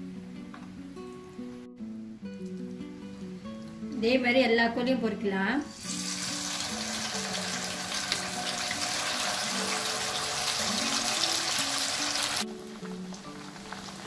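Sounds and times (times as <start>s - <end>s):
chicken deep-frying in oil: 5.7s - 14.0s.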